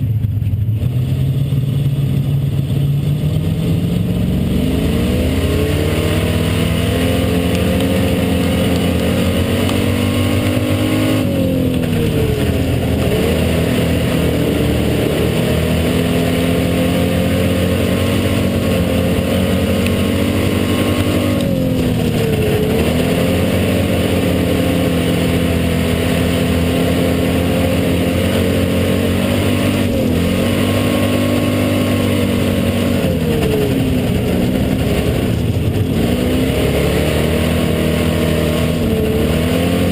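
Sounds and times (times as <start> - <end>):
race car engine at high revs: 0.0 - 39.9.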